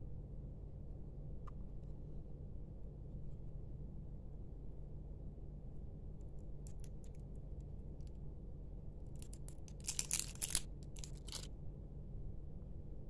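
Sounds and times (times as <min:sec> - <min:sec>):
plastic wrapping crinkling: 0:09.2 - 0:11.5.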